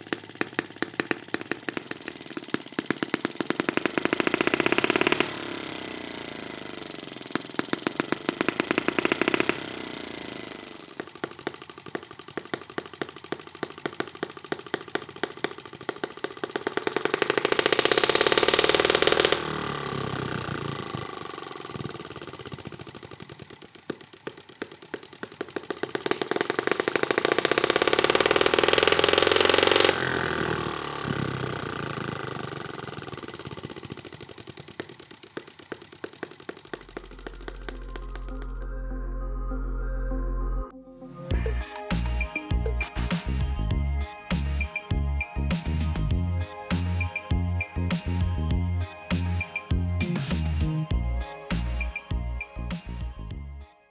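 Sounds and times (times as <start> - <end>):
model engine running: 0.0 - 38.7.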